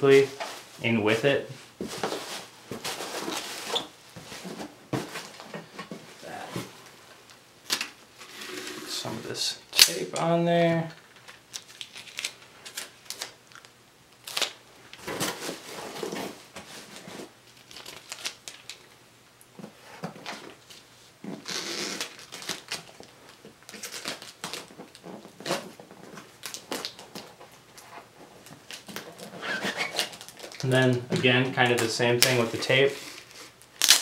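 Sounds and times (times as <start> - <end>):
packing tape ripping: 9.7 - 10.0, 11.3 - 16.4, 17.5 - 18.9, 20.7 - 27.3, 28.5 - 31.0, 31.7 - 34.0.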